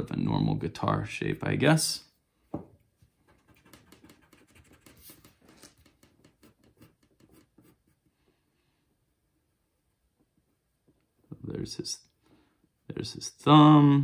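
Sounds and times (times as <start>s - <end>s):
pencil scratching on paper: 3.2s - 8.1s.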